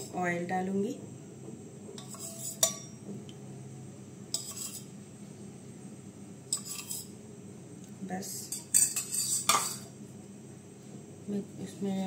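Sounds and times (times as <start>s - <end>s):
steady low hum: 0.0s - 12.0s
metal pan clink: 2.0s - 3.0s, 8.7s - 9.8s.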